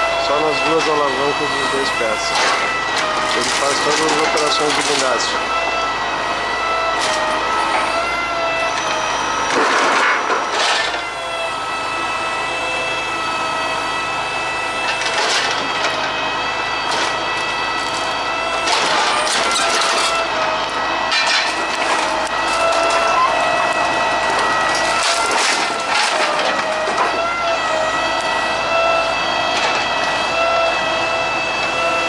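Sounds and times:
crane power unit whine: 0.0s - 32.0s
wood planks clattering and cracking: 2.3s - 5.3s, 9.5s - 11.0s, 14.9s - 16.0s, 16.9s - 17.2s, 18.6s - 20.2s, 21.1s - 23.1s, 24.3s - 27.2s.

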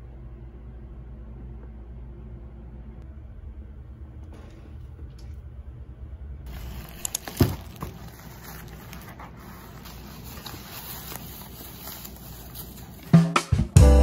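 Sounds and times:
low hum: 0.0s - 13.0s
plastic wrap crinkling: 6.5s - 13.2s.

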